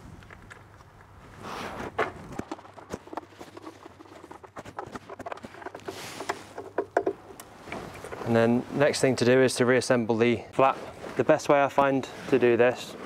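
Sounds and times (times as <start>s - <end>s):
plastic parts knocking: 2.0s - 8.3s.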